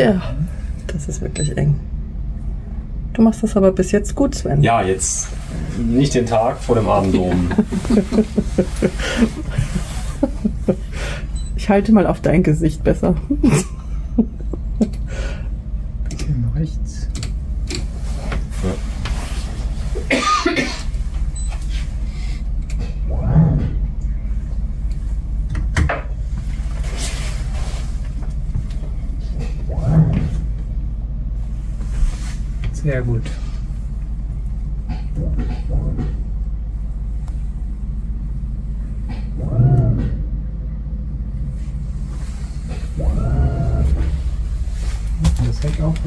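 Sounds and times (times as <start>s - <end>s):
boat motor humming: 0.0s - 46.0s
person coughing: 20.0s - 20.9s.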